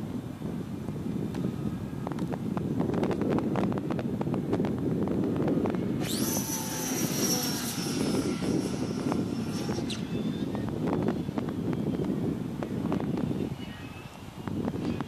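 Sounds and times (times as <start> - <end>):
wind rumble on microphone: 0.0 - 15.0
model plane motor whining: 5.6 - 11.6.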